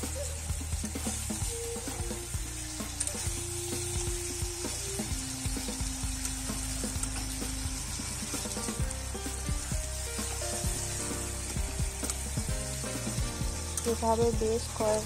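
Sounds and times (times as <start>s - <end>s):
food sizzling in a wok: 0.0s - 15.0s.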